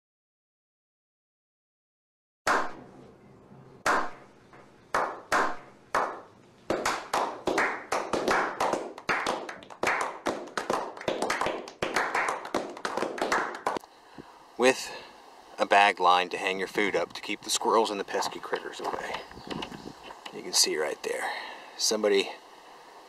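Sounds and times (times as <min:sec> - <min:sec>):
group clapping hands: 0:03.9 - 0:04.2, 0:04.9 - 0:13.8.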